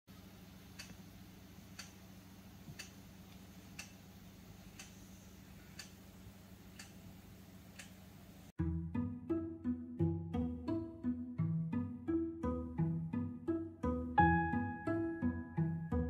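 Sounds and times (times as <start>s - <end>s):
clock ticking: 0.8s - 1.0s, 1.7s - 2.0s, 2.7s - 3.0s, 3.7s - 4.0s, 4.7s - 5.0s, 5.8s - 6.0s, 6.7s - 7.0s
plucked-string music: 8.6s - 16.0s.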